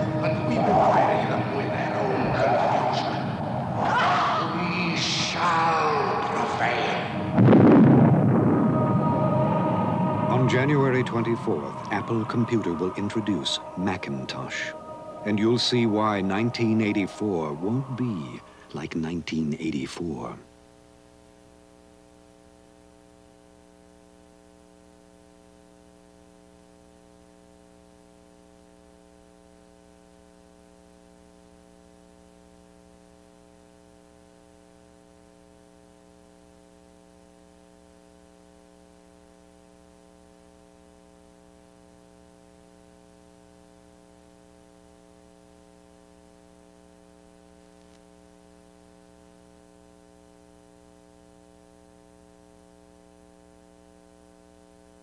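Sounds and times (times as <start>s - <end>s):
electrical hum: 0.0s - 55.0s.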